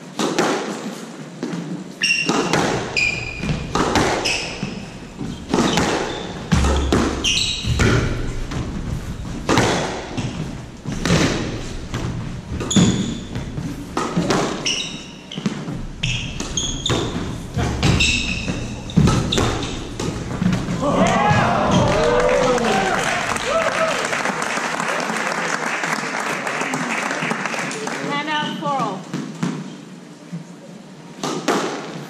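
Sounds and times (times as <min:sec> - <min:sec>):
squash ball hits: 0:00.1 - 0:23.5, 0:31.2 - 0:32.0
shoes squeaking on hardwood floor: 0:00.8 - 0:23.4.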